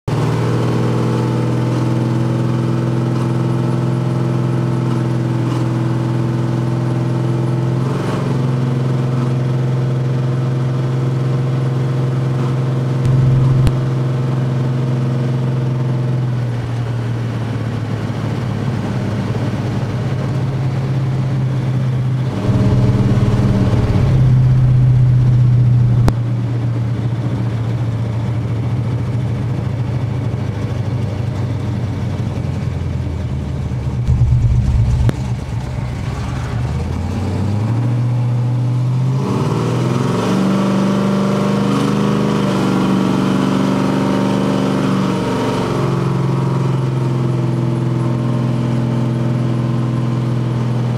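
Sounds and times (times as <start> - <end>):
car engine from inside cabin: 12.9 - 15.9, 21.6 - 27.0, 33.6 - 37.6.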